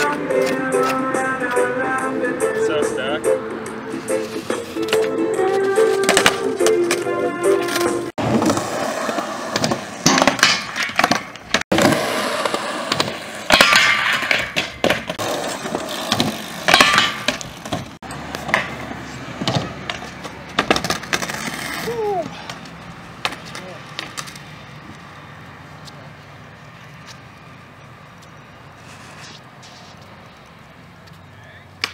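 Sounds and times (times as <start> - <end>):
skateboard wheels rolling on concrete: 0.0 - 31.9
skateboard clacks: 4.6 - 24.4, 31.1 - 31.9.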